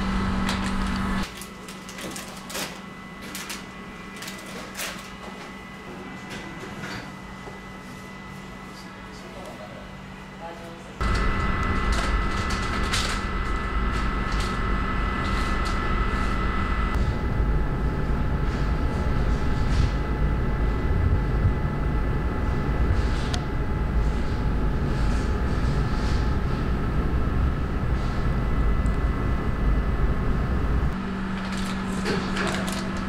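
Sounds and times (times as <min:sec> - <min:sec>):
machinery low rumble: 0:00.0 - 0:01.3, 0:11.0 - 0:33.0
machinery high whine: 0:00.0 - 0:01.4, 0:05.0 - 0:33.0
plastic bags crinkling: 0:01.3 - 0:05.2, 0:31.3 - 0:33.0.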